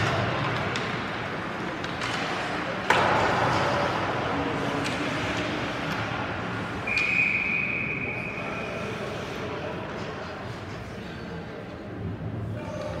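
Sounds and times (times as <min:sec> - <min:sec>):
puck crack: 0:00.0 - 0:07.2
crowd voices: 0:00.0 - 0:13.0.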